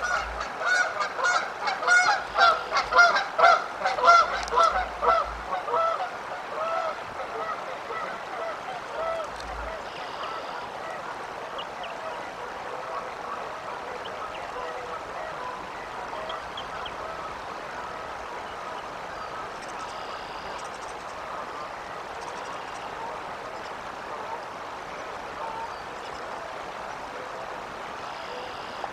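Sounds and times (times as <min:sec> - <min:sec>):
geese honking: 0:00.0 - 0:20.6, 0:25.2 - 0:25.8.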